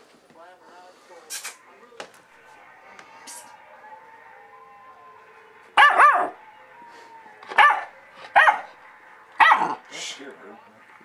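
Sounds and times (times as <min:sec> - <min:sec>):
puppy barking: 0:05.8 - 0:06.4, 0:07.5 - 0:08.8, 0:09.4 - 0:09.8.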